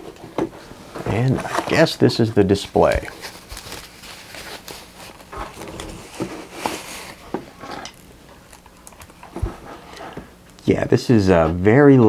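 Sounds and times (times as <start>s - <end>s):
foam sheet rustling: 0.7s - 7.6s.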